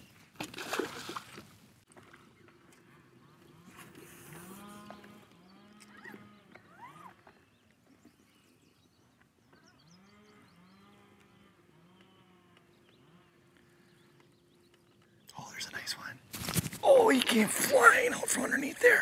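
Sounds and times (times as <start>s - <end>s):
faint low animal calls: 2.6s - 8.6s.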